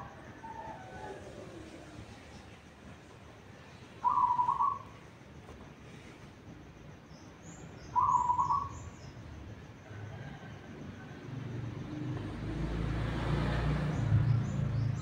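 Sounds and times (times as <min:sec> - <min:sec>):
dove cooing: 0:00.0 - 0:02.4, 0:04.0 - 0:04.9
small bird high chirps: 0:04.0 - 0:05.0, 0:07.2 - 0:09.2.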